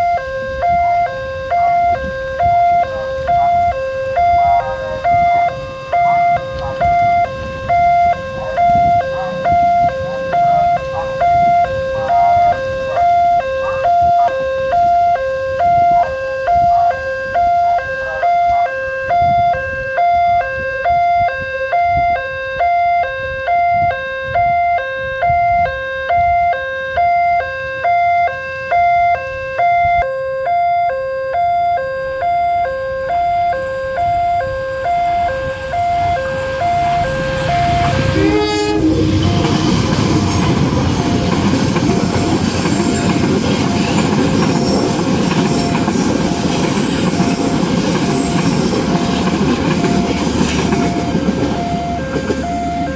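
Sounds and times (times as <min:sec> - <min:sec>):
train horn: 0:00.0 - 0:52.9
train passing with wheel clatter: 0:00.0 - 0:52.9.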